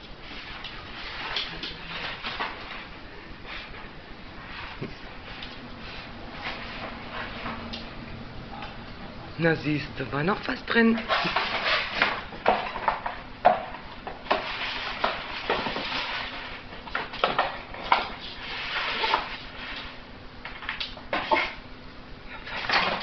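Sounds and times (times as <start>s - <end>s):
cardboard rustling and tearing: 10.9s - 13.0s.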